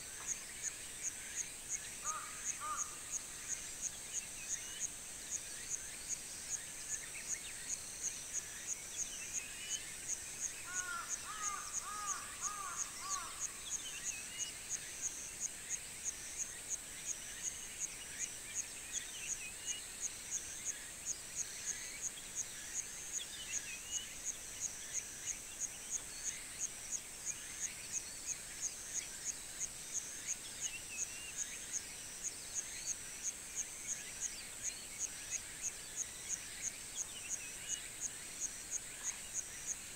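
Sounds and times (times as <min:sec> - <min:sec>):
insect chirping pulsing drone: 0:00.0 - 0:39.9
birdsong: 0:00.1 - 0:15.8.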